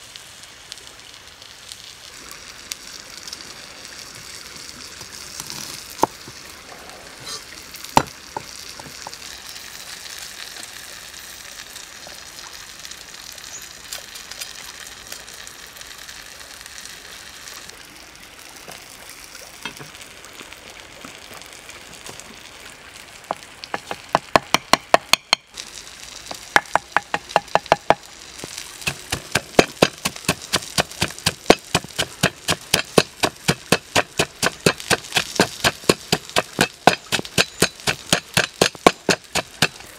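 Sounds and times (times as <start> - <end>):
steady hiss: 0.0 - 39.9
pestle pounding in wooden mortar: 23.7 - 25.4, 26.6 - 28.0, 28.8 - 39.8
cleaver chopping on wooden board: 23.8 - 25.4, 26.6 - 28.0, 28.9 - 39.8.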